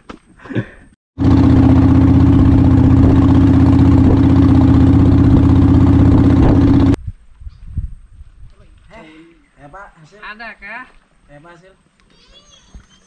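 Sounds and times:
boat engine humming: 0:01.2 - 0:07.0.

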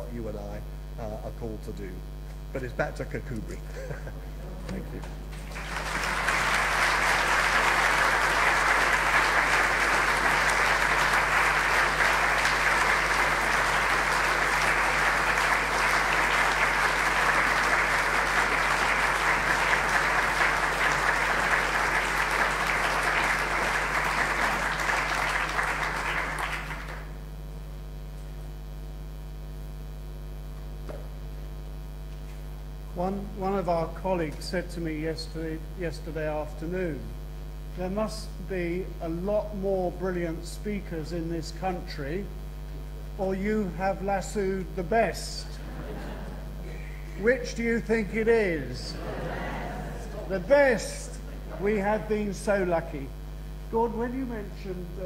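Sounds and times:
low electrical hum: 0:00.0 - 0:55.0
audience applauding: 0:05.3 - 0:27.2.

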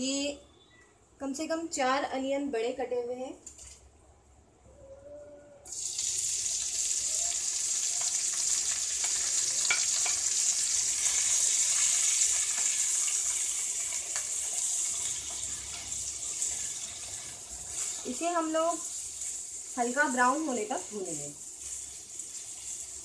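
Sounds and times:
onions sizzling in hot oil: 0:05.7 - 0:23.0.

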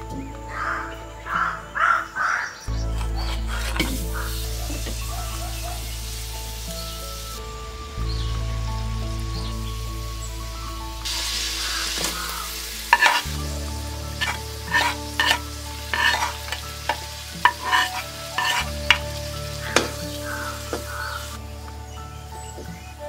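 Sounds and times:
onions sizzling in wok: 0:02.7 - 0:23.0
spoon scraping wok: 0:11.1 - 0:13.4, 0:14.2 - 0:19.0.

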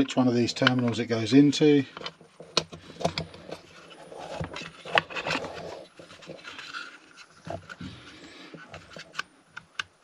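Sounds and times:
small plastic clicks and rubbing: 0:00.4 - 0:01.2, 0:01.9 - 0:07.9.

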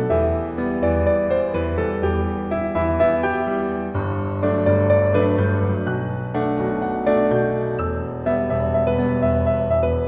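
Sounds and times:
soft piano music: 0:00.0 - 0:10.0.

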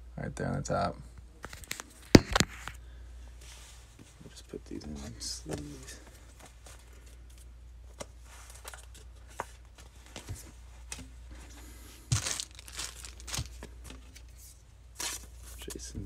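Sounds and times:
plastic sleeves crinkling: 0:12.0 - 0:15.7.

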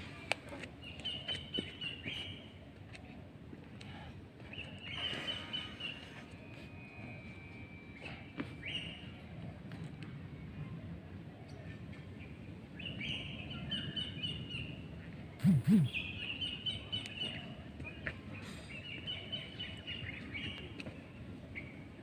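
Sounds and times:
songbirds chirping: 0:00.1 - 0:22.0
short low-pitched sounds: 0:15.4 - 0:16.0.

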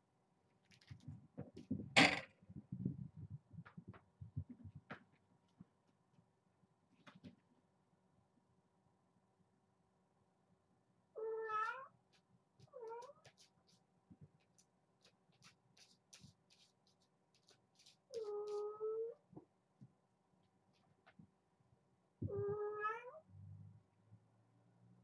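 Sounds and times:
kitten meowing: 0:11.2 - 0:11.9, 0:22.3 - 0:23.2.

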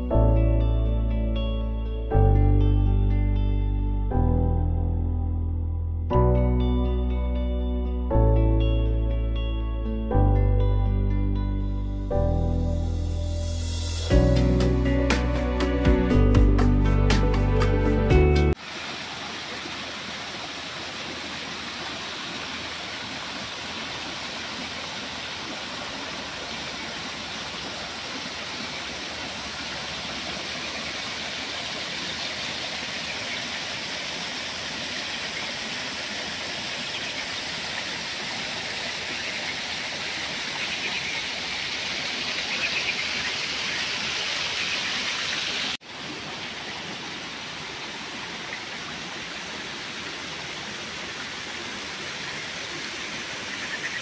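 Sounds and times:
waterfall splashing over rocks: 0:18.5 - 0:54.0.

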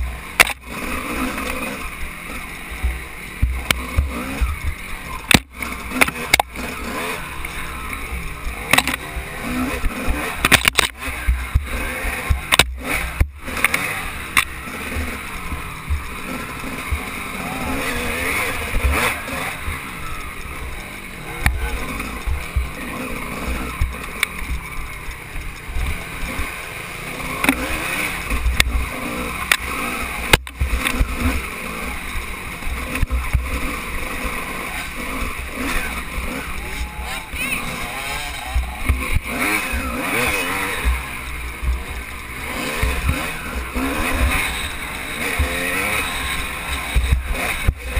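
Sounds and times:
motorcycle engine revving: 0:00.0 - 0:47.9.

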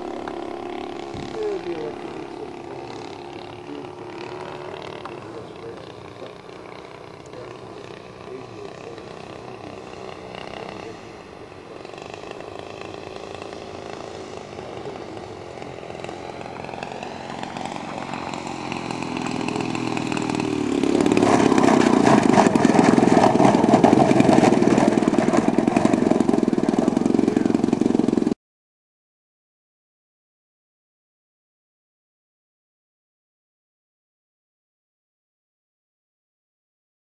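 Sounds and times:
model plane engine and propeller: 0:00.0 - 0:28.4.

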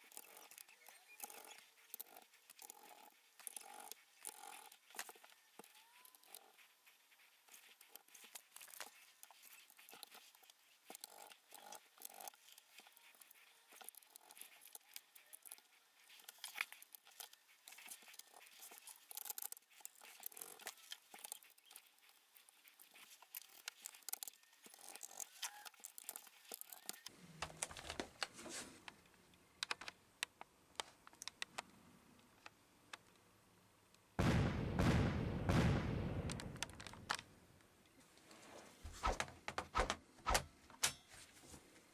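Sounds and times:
screwdriver clicks and taps: 0:29.6 - 0:31.7.

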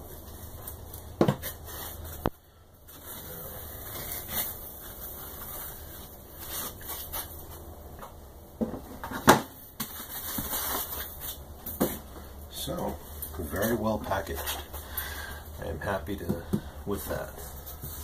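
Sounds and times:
foam packing rustling and scraping: 0:00.0 - 0:07.7, 0:09.0 - 0:12.4, 0:16.9 - 0:18.0.

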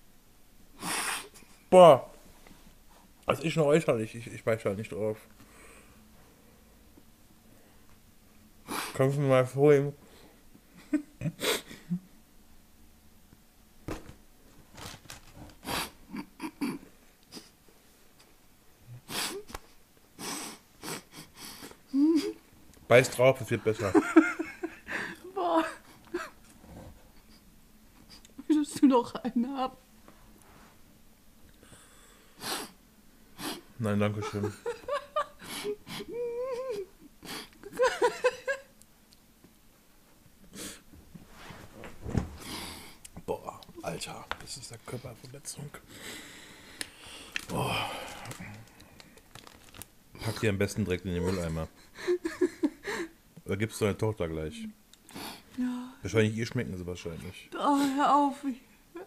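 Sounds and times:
person whimpering: 0:21.9 - 0:22.4, 0:35.3 - 0:37.9, 0:47.5 - 0:48.7
person moaning in disgust: 0:35.6 - 0:36.9, 0:47.5 - 0:48.6.

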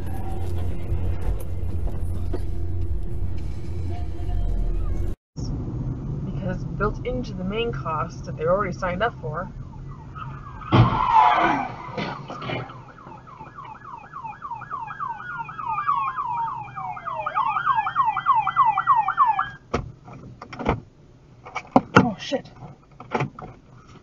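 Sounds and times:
police siren wail: 0:09.4 - 0:19.6
police siren yelp: 0:09.5 - 0:19.6.

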